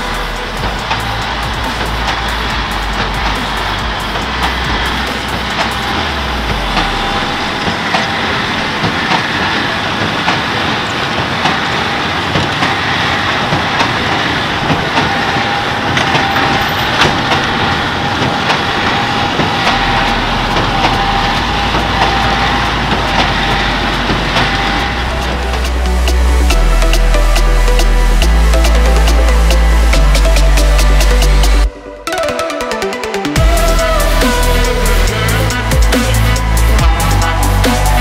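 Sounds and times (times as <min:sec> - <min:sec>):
tractor engine running: 0:00.0 - 0:38.0.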